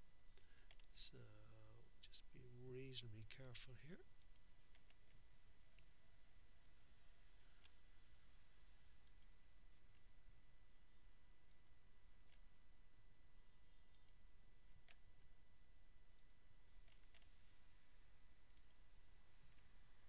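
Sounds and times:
low hiss: 0.0s - 12.6s
thin electrical whine: 0.0s - 20.0s
computer mouse clicks: 0.4s - 1.0s, 4.2s - 5.9s, 6.6s - 7.0s, 9.0s - 10.1s, 11.5s - 12.4s, 13.9s - 14.2s, 14.8s - 15.1s, 16.1s - 17.4s, 18.4s - 18.9s.

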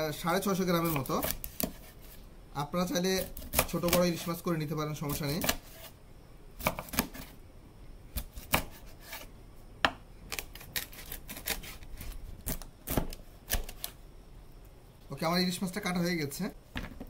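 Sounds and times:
knife chopping on wooden board: 0.8s - 1.9s, 6.6s - 7.2s, 8.2s - 9.2s.

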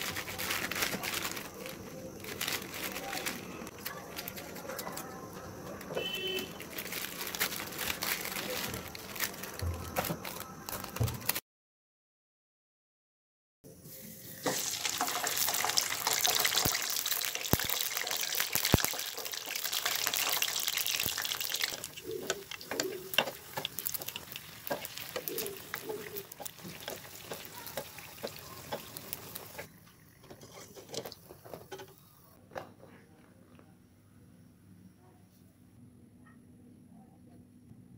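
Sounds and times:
deep-frying sizzling and crackling: 14.0s - 31.9s.

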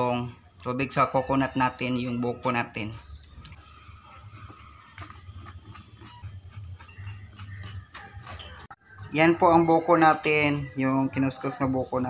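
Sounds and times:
metal utensil scraping coconut: 3.6s - 8.8s.

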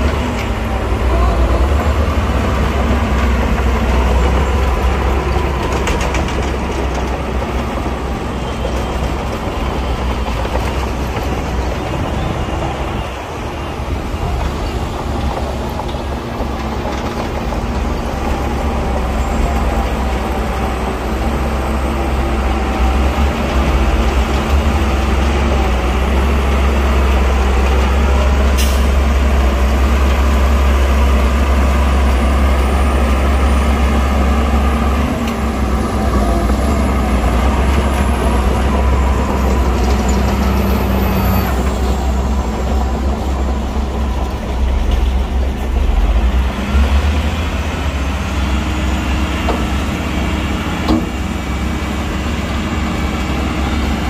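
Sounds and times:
diesel machinery rumbling: 0.0s - 54.0s.

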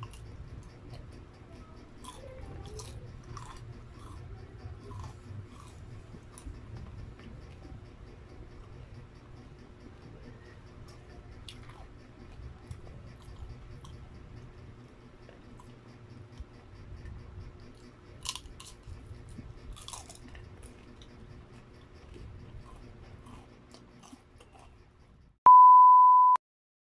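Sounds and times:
chewing crispy fried chicken: 0.0s - 25.3s
high beep tone: 25.5s - 26.4s.

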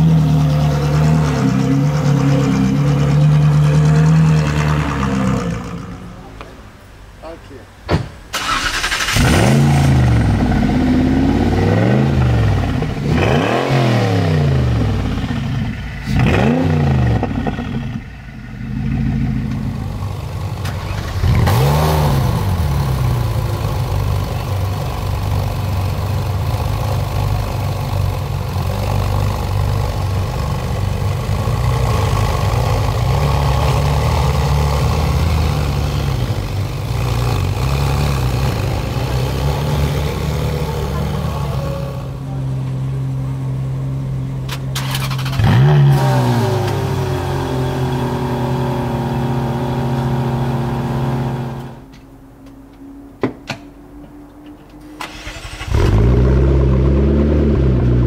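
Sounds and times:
supercar engine revving: 0.0s - 6.3s, 8.4s - 51.9s, 55.0s - 58.0s
car engine idling: 0.0s - 13.2s, 14.4s - 45.4s.

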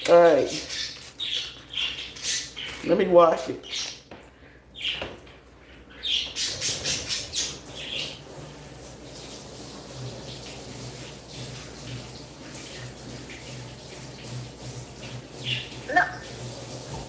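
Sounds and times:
tap water running: 6.4s - 17.0s.

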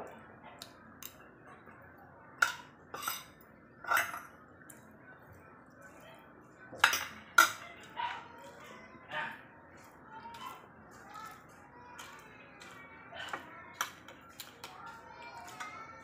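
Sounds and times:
cutlery clinking on ceramic bowls: 2.4s - 4.8s, 6.7s - 8.0s, 11.2s - 16.0s.

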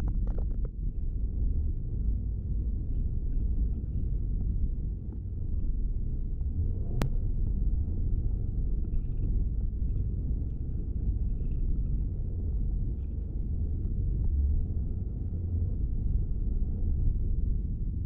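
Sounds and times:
car interior road rumble: 0.0s - 18.0s.

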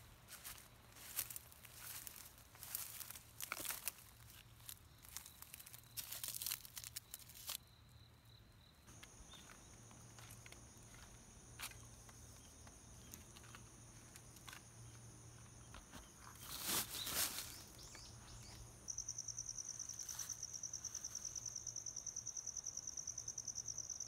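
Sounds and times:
dry leaves crackling: 0.3s - 7.6s, 16.4s - 18.0s
high-pitched insect trill: 0.4s - 24.0s.

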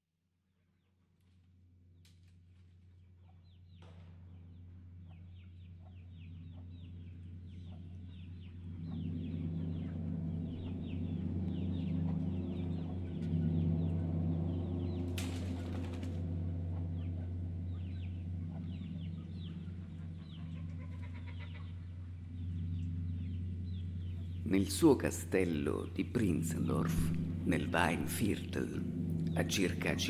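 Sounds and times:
steady low drone: 1.4s - 30.0s
chickens clucking: 16.7s - 22.1s.

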